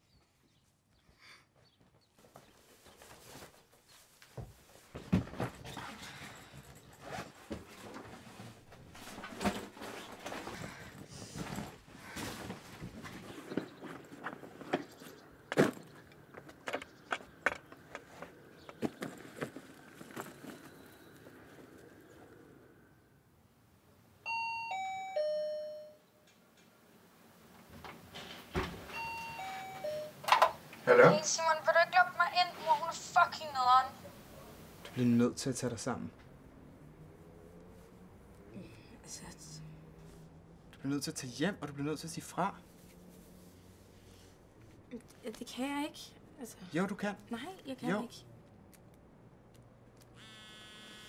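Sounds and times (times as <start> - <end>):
door intercom chime: 24.3 - 26.1, 28.9 - 30.6.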